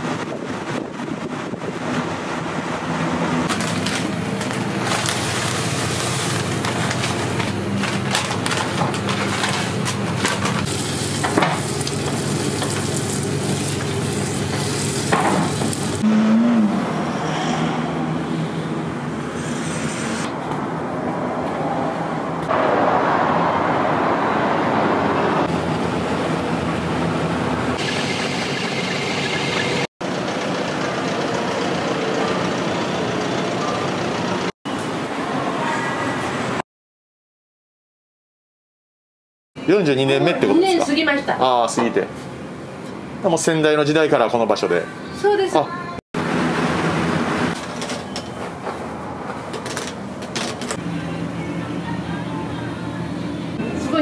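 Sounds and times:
road traffic: 0.0 - 7.8, 13.1 - 36.6, 46.2 - 54.0
food sizzling and frying: 3.5 - 16.0.

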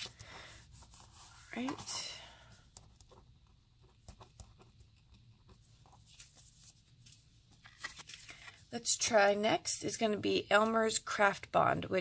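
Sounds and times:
card rustling: 5.5 - 8.7.

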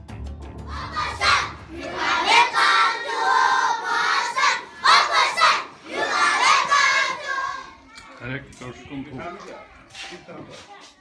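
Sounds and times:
background music with steady beat: 0.0 - 2.0
children calling out in chorus: 0.7 - 8.2.

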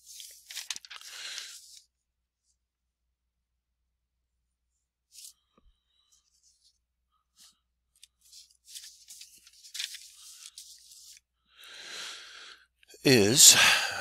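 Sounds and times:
scratchy rustling: 8.0 - 11.2.

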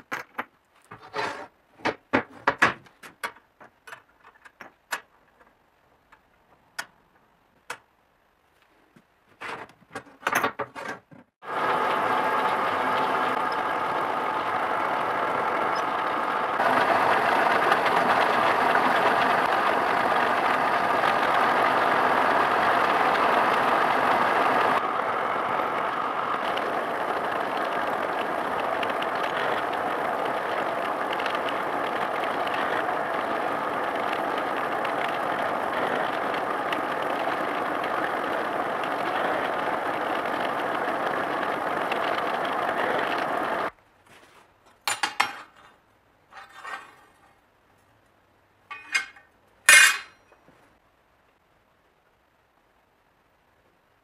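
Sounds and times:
steel gears clinking: 48.7 - 50.2.

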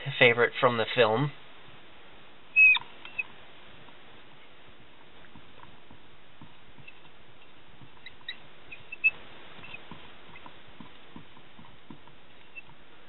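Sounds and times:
steady hiss: 0.0 - 13.0
marker squeaking on whiteboard: 2.6 - 3.3, 6.4 - 12.8.

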